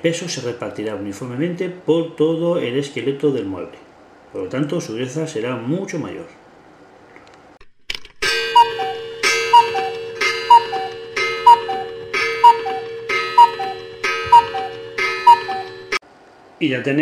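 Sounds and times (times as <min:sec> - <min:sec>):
clock ticking: 0:08.4 - 0:16.0
falling two-note blip: 0:08.4 - 0:16.0
steady tone: 0:08.4 - 0:16.0.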